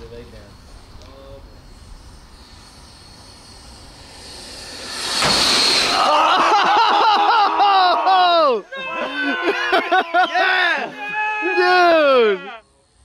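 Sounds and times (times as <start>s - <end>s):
model jet fan whine: 0.0s - 8.6s
people yelling excitedly: 5.9s - 12.6s.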